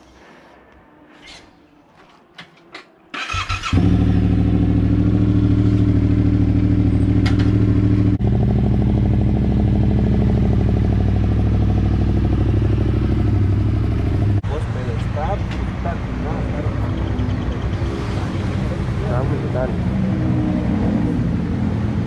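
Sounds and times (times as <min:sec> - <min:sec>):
motorcycle engine starting and idling: 0:03.1 - 0:15.6.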